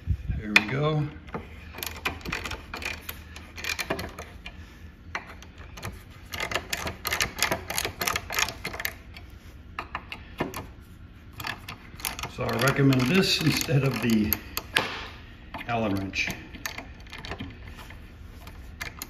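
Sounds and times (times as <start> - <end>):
ratchet wrench clicking: 5.2 - 9.0, 11.4 - 14.8.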